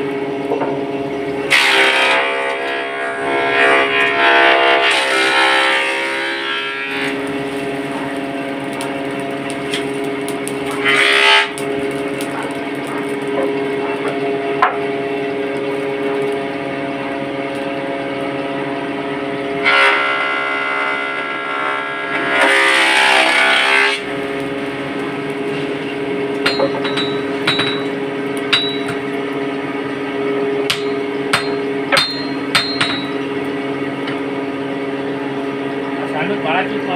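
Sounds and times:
forge blower whining: 0:00.0 - 0:36.9
hammer blows on anvil: 0:26.4 - 0:27.9, 0:28.5 - 0:29.0, 0:30.7 - 0:33.2.

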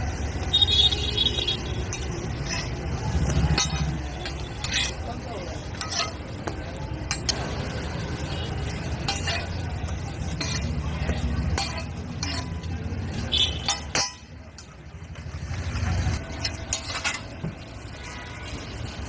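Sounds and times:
metal spatula scraping on griddle: 0:01.3 - 0:07.6, 0:08.2 - 0:19.0.

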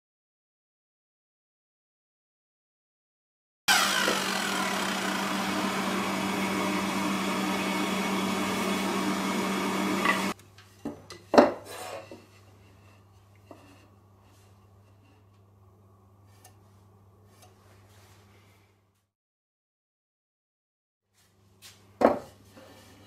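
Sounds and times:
miter saw cutting wood: 0:03.7 - 0:10.4.

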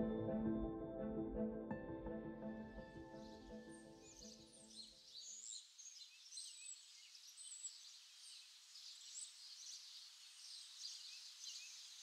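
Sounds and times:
songbirds chirping: 0:03.2 - 0:12.0.

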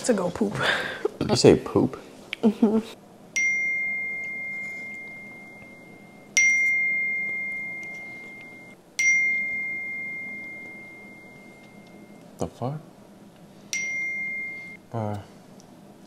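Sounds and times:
phone notification ding: 0:03.4 - 0:12.2.

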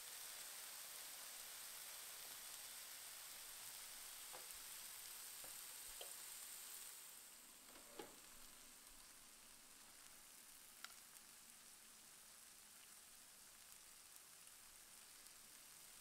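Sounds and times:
meat sizzling on grill: 0:00.0 - 0:16.0
small pops and clicks: 0:04.3 - 0:04.6, 0:05.4 - 0:06.2, 0:10.8 - 0:11.1.

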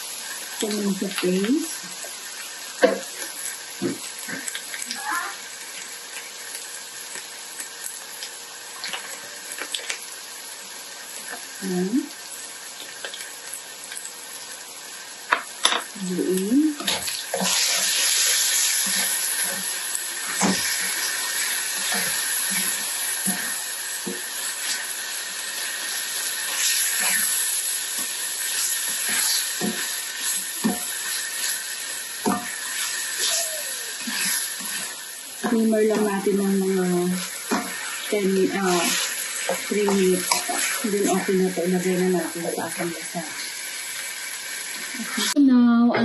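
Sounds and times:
meat sauce sizzling in a pan: 0:00.0 - 0:45.4
spatula scraping a pan: 0:16.8 - 0:24.9, 0:25.6 - 0:33.3, 0:37.4 - 0:41.3.

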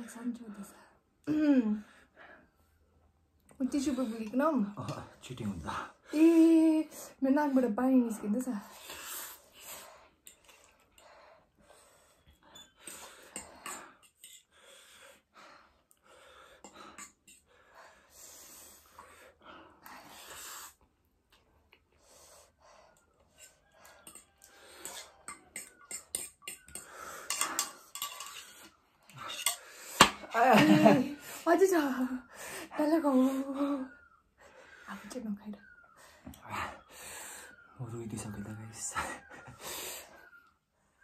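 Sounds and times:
cutlery clinking on bowls: 0:12.9 - 0:14.5, 0:23.4 - 0:30.9.

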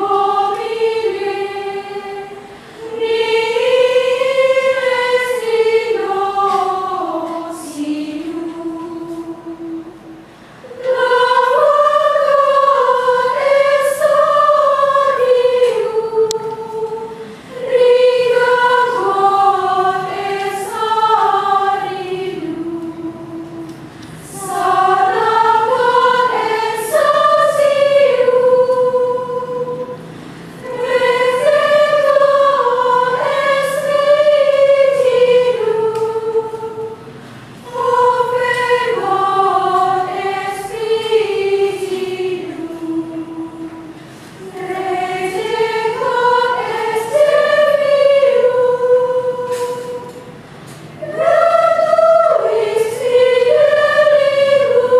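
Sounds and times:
women's choir chanting unaccompanied: 0:00.0 - 0:54.9.

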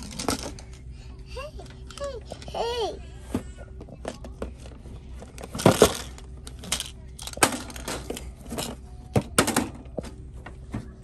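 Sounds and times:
toy boxes crinkling and clattering: 0:00.0 - 0:00.9, 0:03.8 - 0:10.7.

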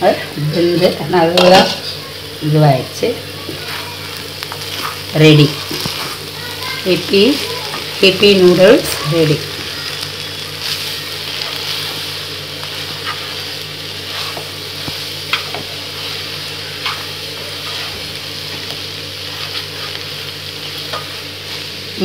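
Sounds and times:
noodles sizzling in a pan: 0:00.0 - 0:22.0
steady low hum: 0:00.0 - 0:22.0
spatula tapping and scraping pan: 0:14.1 - 0:21.2.

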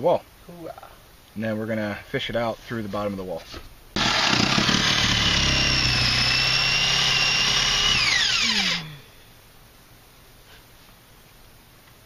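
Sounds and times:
electric drill whining: 0:04.0 - 0:09.2.

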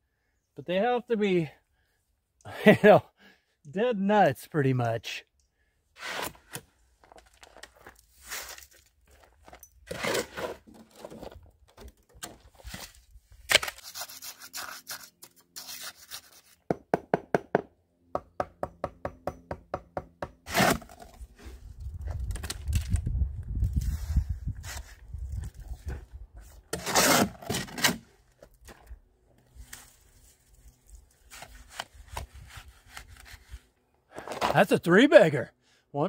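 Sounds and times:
shovel scraping wheelbarrow: 0:06.0 - 0:06.6, 0:08.1 - 0:11.4, 0:20.4 - 0:21.4, 0:26.4 - 0:28.1, 0:34.2 - 0:34.7.

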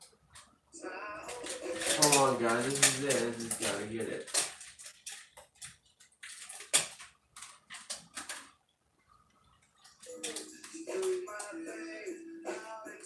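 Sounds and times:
objects being handled: 0:01.2 - 0:11.6.

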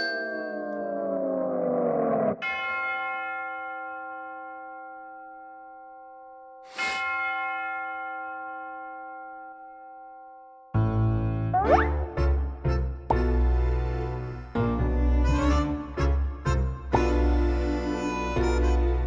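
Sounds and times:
bell-like chime ringing: 0:00.0 - 0:10.8.

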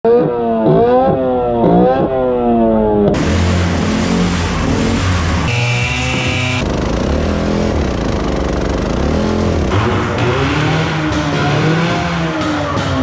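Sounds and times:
small boat engine revving: 0:03.2 - 0:12.7.

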